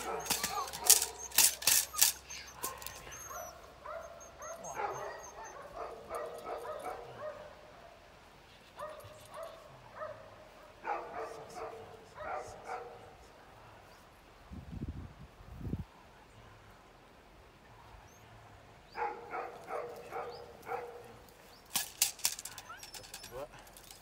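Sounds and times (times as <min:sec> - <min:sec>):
puppy yipping: 0:00.0 - 0:07.4, 0:22.4 - 0:23.5.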